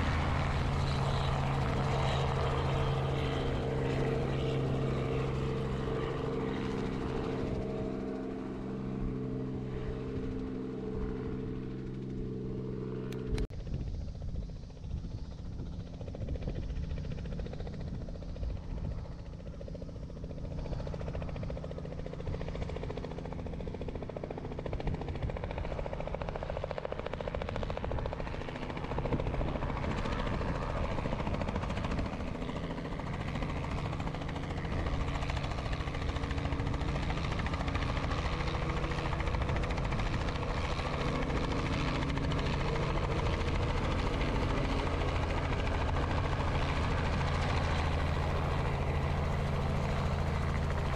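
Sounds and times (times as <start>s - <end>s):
helicopter rotor and engine: 0.0s - 50.9s.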